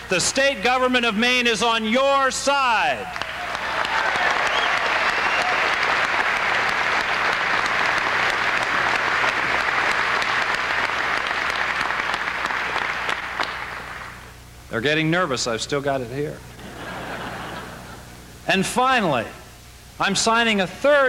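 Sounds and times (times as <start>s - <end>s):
audience applauding: 3.0s - 14.3s.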